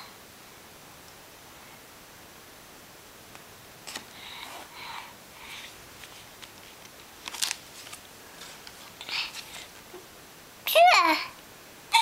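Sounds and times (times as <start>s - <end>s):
low hiss: 0.0s - 12.0s.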